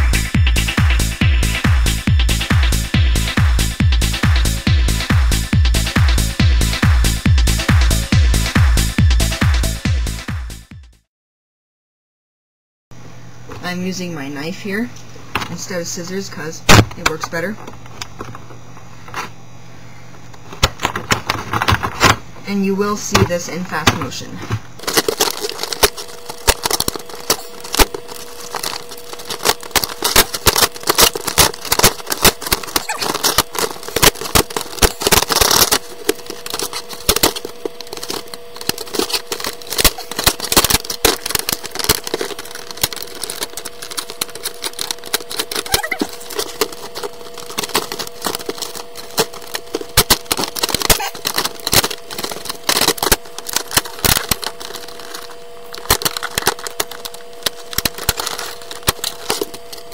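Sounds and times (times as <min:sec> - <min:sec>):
faint steady hum: 0:13.0 - 0:59.9
plastic packaging cracking: 0:24.8 - 0:59.9.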